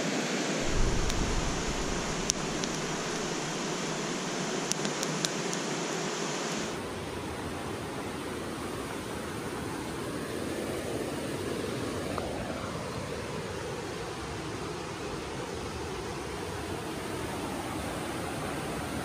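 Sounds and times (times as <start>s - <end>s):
river rushing: 0.0s - 13.1s
campfire popping: 0.6s - 5.8s.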